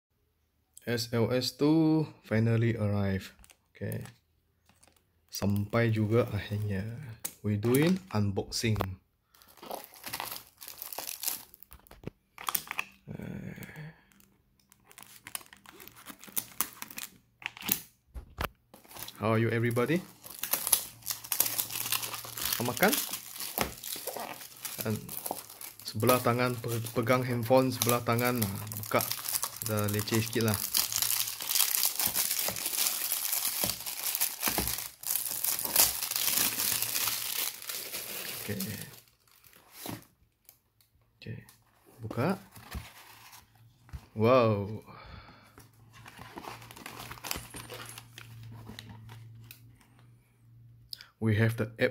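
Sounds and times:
plastic shrink-wrap crinkling: 0:09.3 - 0:12.9, 0:14.1 - 0:17.7, 0:18.8 - 0:40.0, 0:46.0 - 0:49.6.

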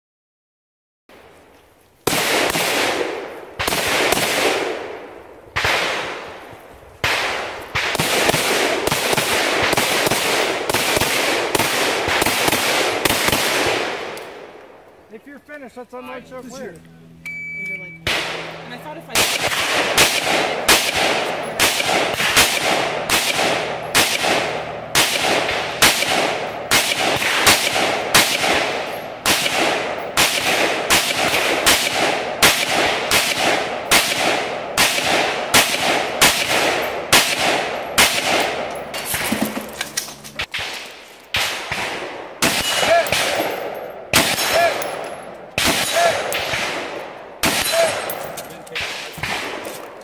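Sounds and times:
rifle shots with echo: 0:02.0 - 0:14.9, 0:17.8 - 0:50.0
steel target plates ringing: 0:42.5 - 0:46.5.

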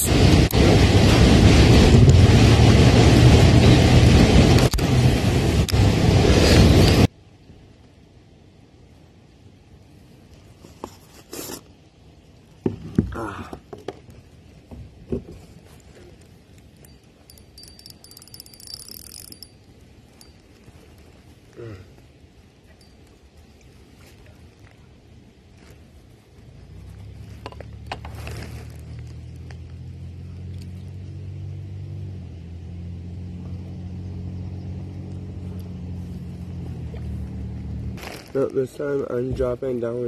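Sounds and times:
fishing reel clicking: 0:17.3 - 0:19.6.

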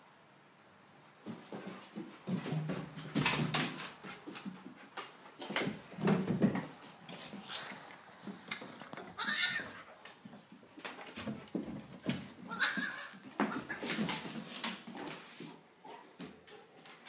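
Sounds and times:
animals scuffling on wooden floor: 0:01.2 - 0:17.0
thumps and knocks on chair legs: 0:05.5 - 0:06.9.

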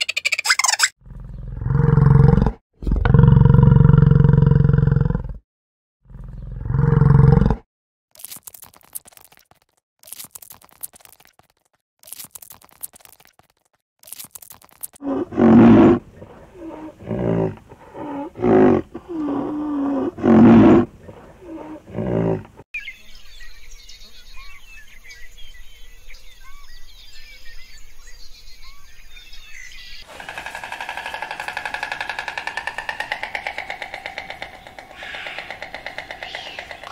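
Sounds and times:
short noisy bursts: 0:30.0 - 0:35.6
rhinoceros calls: 0:30.0 - 0:36.9
stork nestlings chirping: 0:30.0 - 0:36.9.

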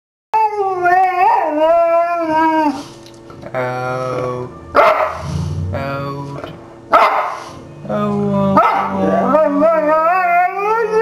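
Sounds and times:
dog howling: 0:00.4 - 0:03.0, 0:04.6 - 0:06.2, 0:07.0 - 0:11.0
dog yelping: 0:04.8 - 0:05.3, 0:06.9 - 0:07.5, 0:08.6 - 0:11.0.

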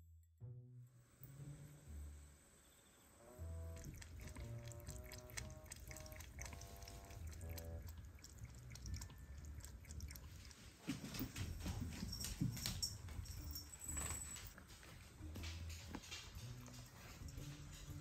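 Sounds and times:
cat lapping water: 0:03.7 - 0:11.3.

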